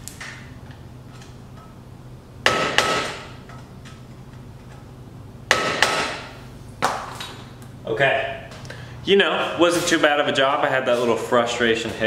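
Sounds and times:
hammer striking metal: 2.4 - 3.6, 5.5 - 6.4.

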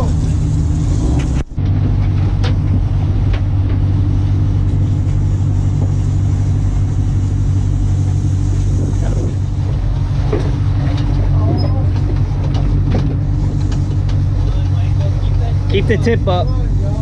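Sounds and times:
boat engine droning: 0.0 - 17.0
wind: 0.0 - 17.0
water hissing: 4.2 - 10.8.

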